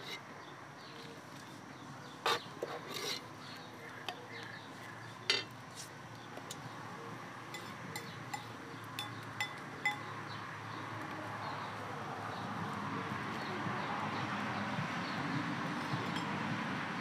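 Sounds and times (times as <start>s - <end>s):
spoon and ladle clinking: 7.5s - 10.1s, 16.0s - 16.4s.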